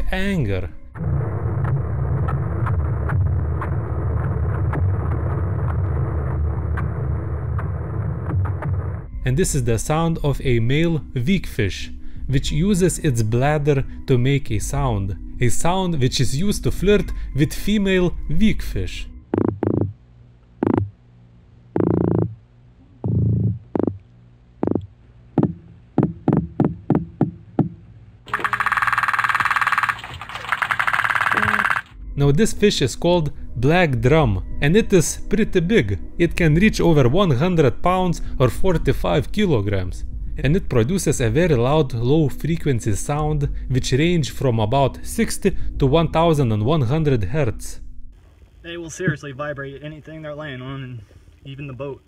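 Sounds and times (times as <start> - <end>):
sharp underwater clicks: 28.3 - 32.0.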